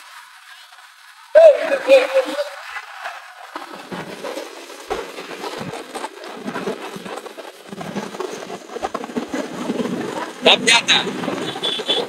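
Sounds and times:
road noise: 0.0 - 12.0
wind buffeting microphone: 1.4 - 12.0
motorcycle engine running: 11.1 - 12.0.

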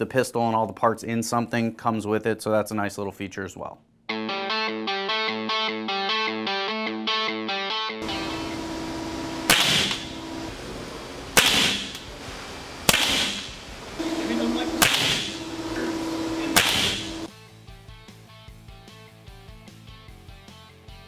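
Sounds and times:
air pistol shots popping: 9.5 - 10.2, 11.4 - 12.1, 12.9 - 13.6, 14.8 - 15.4, 16.6 - 17.2.

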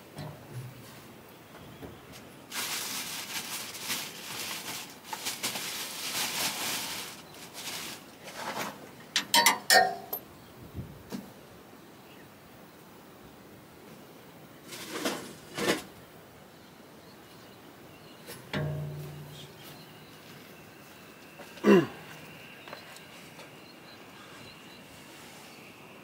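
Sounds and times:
rustling and scraping: 0.0 - 9.1, 14.6 - 16.0, 18.2 - 23.5.

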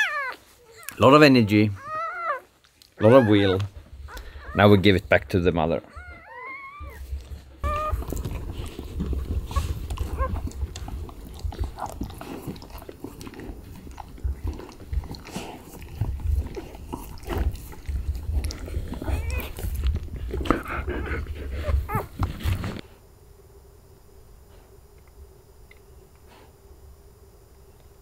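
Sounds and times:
puppy squeaking: 0.0 - 5.0, 5.8 - 8.3, 10.1 - 10.4, 19.1 - 19.6
puppy suckling: 0.0 - 22.8.

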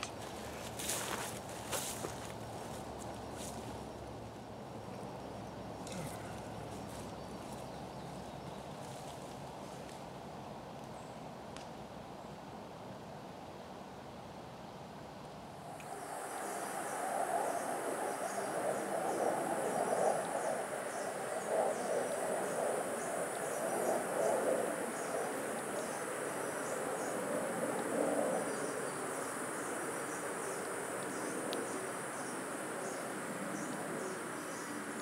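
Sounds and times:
insects buzzing: 0.0 - 10.0, 15.6 - 35.0
short insect chirps: 15.6 - 35.0
soft rushing noise: 15.6 - 35.0.

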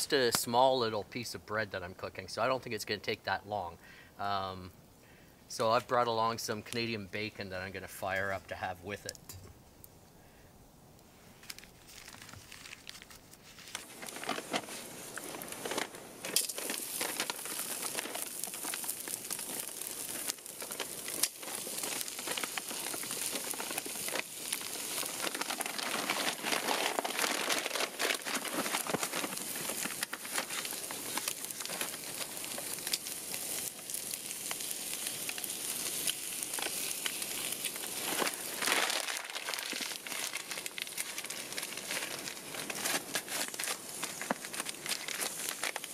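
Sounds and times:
paper crinkling: 11.4 - 45.9
bacon sizzling in a pan: 14.7 - 45.9.

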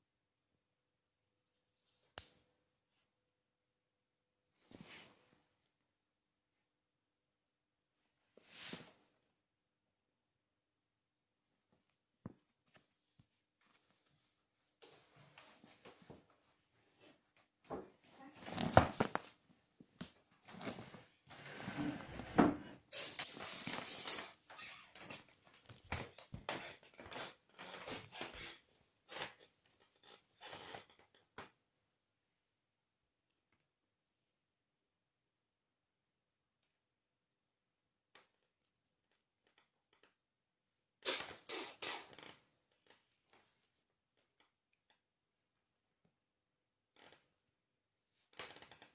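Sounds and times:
fabric rustling and scratching: 20.4 - 22.4
hissy rubbing: 22.9 - 24.5.

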